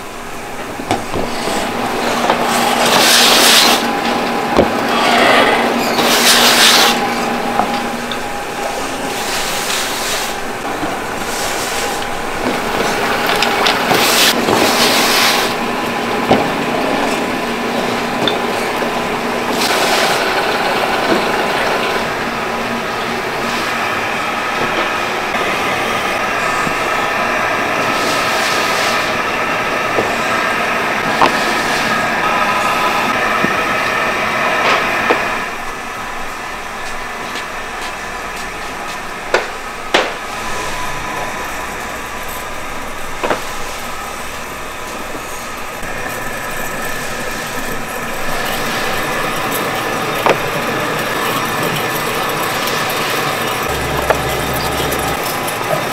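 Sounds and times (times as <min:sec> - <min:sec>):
factory machinery humming: 0:00.0 - 0:55.9
faint steady tones: 0:53.6 - 0:55.9.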